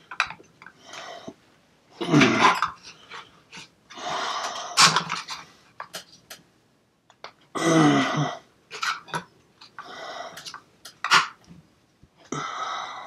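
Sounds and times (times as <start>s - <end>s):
heavy breathing: 0.7s - 1.4s, 2.2s - 5.6s, 9.8s - 10.6s, 12.3s - 13.0s.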